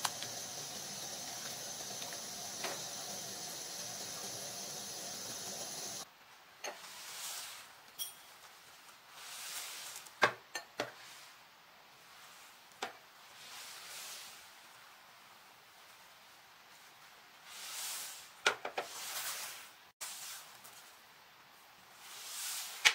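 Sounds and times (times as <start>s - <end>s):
rice boiling in a pot: 0.0s - 6.1s, 6.7s - 7.8s, 8.5s - 10.2s, 10.8s - 22.9s
clinks on a glass bowl: 8.0s - 8.3s.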